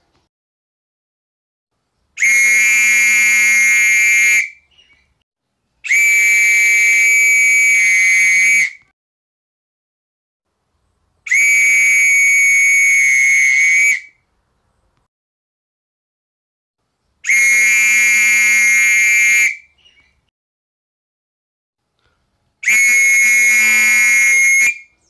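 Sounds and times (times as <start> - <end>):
whistle blasts: 2.2 - 4.7, 5.8 - 8.9, 11.3 - 14.2, 17.2 - 19.8, 22.6 - 25.0.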